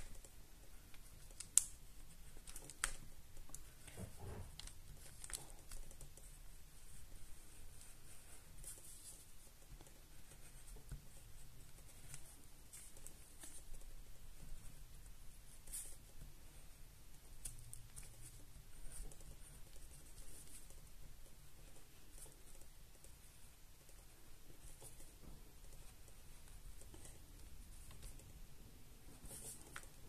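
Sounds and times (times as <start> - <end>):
pencil scratching on paper: 3.6 - 16.6, 29.1 - 29.8.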